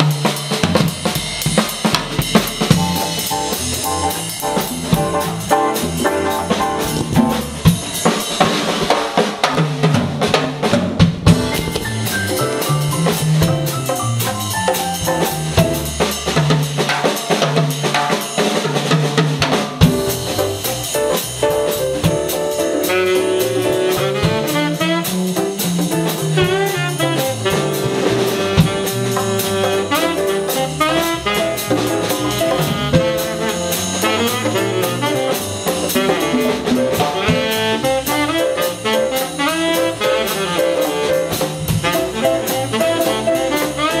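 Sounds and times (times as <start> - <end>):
electric bass: 0.0 - 8.8, 11.1 - 16.7, 19.8 - 44.0
drum kit with cymbals: 0.0 - 44.0
piano: 0.0 - 44.0
tenor saxophone: 22.8 - 25.7, 26.3 - 44.0.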